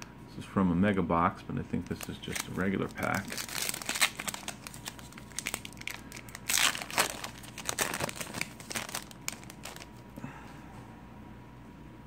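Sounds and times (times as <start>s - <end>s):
foil wrapper tearing and crinkling: 1.8s - 10.0s
cards sliding out of wrapper: 1.9s - 9.9s.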